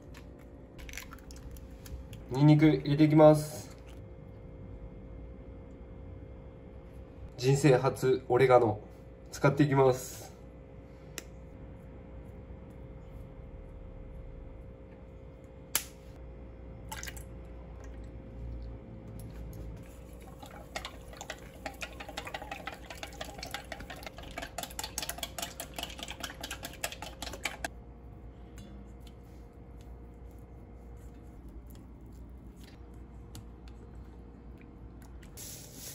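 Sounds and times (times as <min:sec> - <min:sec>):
chopsticks beating eggs in metal bowl: 0:20.4 - 0:27.7.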